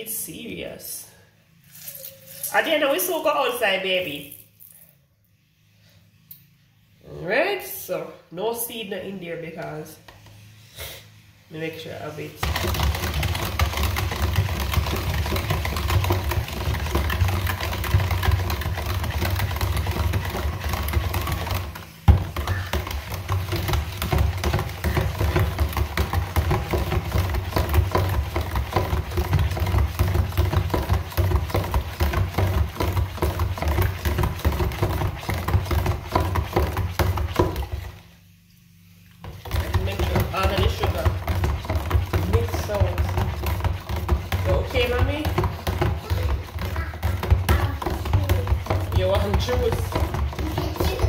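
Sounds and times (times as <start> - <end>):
stick blender motor humming: 12.4 - 38.0, 39.2 - 51.0.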